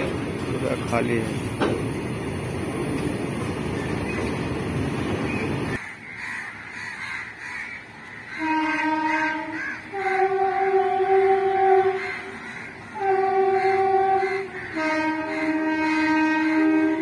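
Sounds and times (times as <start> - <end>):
freight train rumbling past: 0.0 - 5.8, 8.3 - 17.0
train horn long notes: 8.4 - 17.0.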